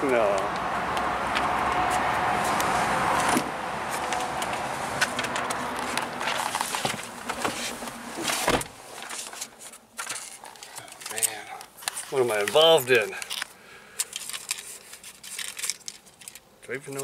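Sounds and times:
outdoor hum: 0.0 - 16.8
car door clicks and rustling: 3.2 - 9.3
car door shutting thump: 8.4 - 8.8.

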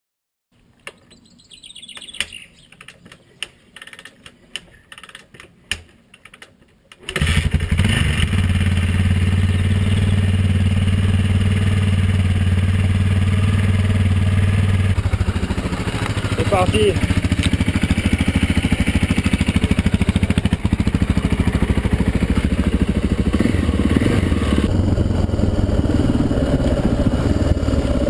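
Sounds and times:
kickstarter clicks and clunks: 1.9 - 7.2
motorcycle engine idling: 8.4 - 28.0.

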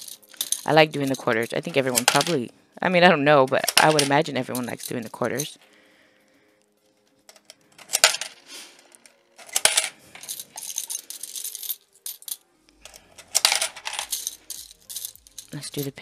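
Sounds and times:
coins clinking against each other: 0.0 - 2.5, 3.3 - 5.7, 7.2 - 16.0
coins clinking into a piggy bank: 0.0 - 2.5, 3.4 - 5.6, 7.3 - 16.0.

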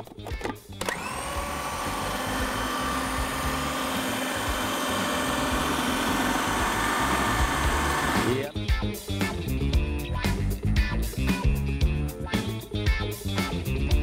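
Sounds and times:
food processor motor whining: 0.8 - 8.5.

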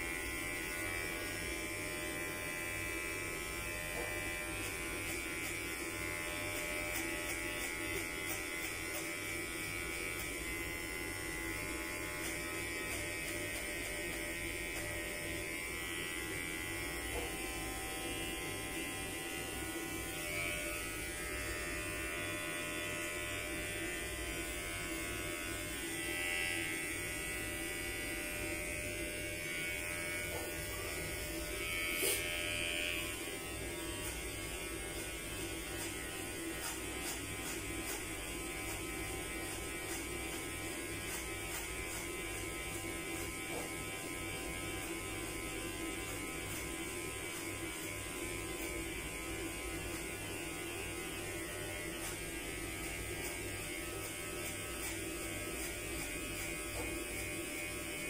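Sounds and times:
electric hair clipper buzzing: 0.0 - 58.0.

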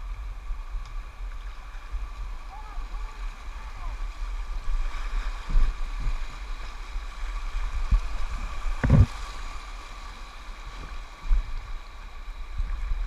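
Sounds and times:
river rapids rushing: 1.1 - 11.2
short dull thumps: 8.8 - 9.1.

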